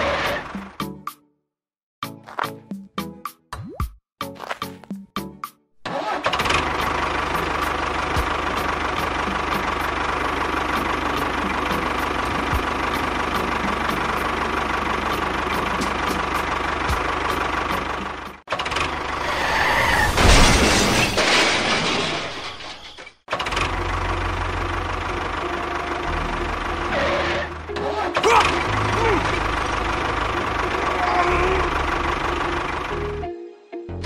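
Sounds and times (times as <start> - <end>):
diesel engine running: 5.8 - 20.2, 23.3 - 33.3
louder noisy engine: 5.8 - 20.3, 23.3 - 33.2.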